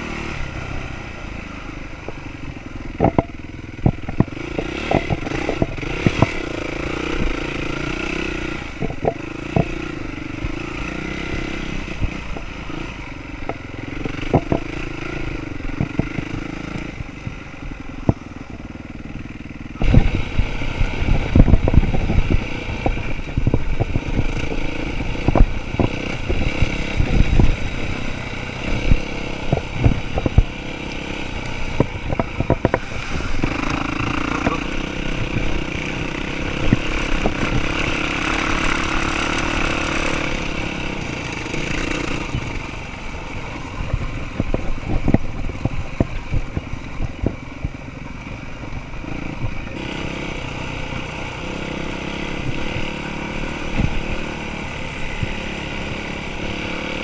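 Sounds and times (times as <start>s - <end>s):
bike knocking and rattling over bumps: 1.9s - 57.0s
dirt bike engine revving: 3.0s - 13.1s, 19.2s - 43.0s.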